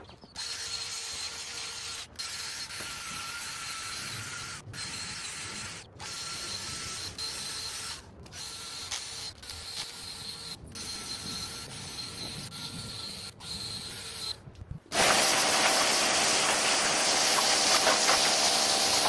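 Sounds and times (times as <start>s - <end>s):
cordless drill motor whine: 0.0s - 19.0s
brush scrubbing carpet: 15.0s - 19.0s.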